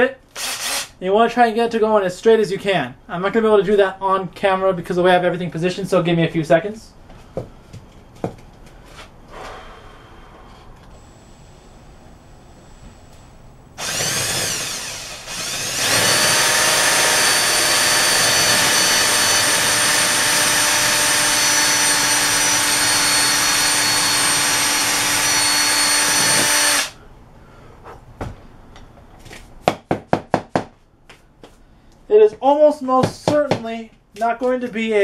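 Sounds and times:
electric drill whining: 0.4s - 0.9s, 13.8s - 27.0s.

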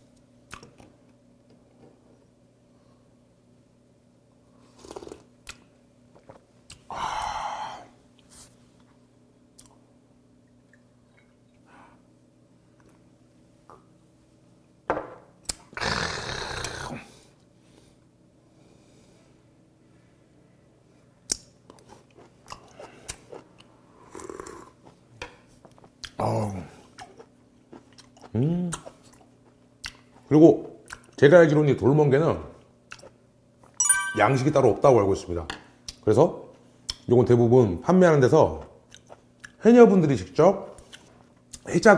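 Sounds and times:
man chewing wetly: 21.3s - 26.2s, 26.8s - 31.2s, 32.9s - 33.8s, 38.8s - 39.6s.

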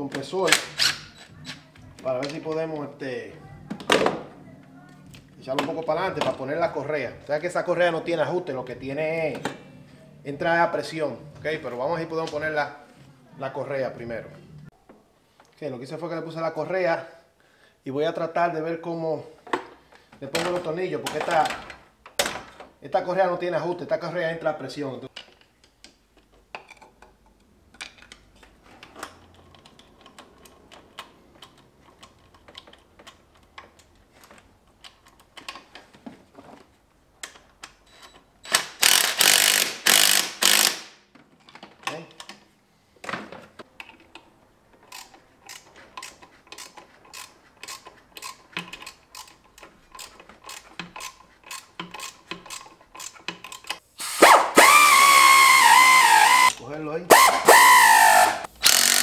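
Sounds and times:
ratchet wrench clicking: 38.5s - 40.9s, 44.9s - 59.0s.

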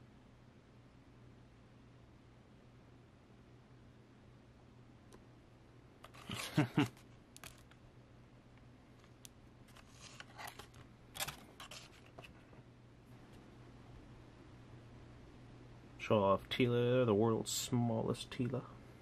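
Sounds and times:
fingers clicking and scraping card: 6.1s - 6.6s.

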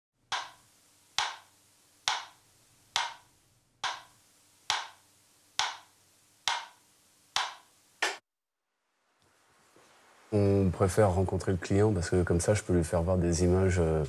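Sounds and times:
wooden ticking clicks: 0.3s - 0.6s, 1.2s - 4.1s, 4.7s - 5.0s, 5.6s - 5.9s, 6.5s - 6.8s, 7.4s - 7.6s.

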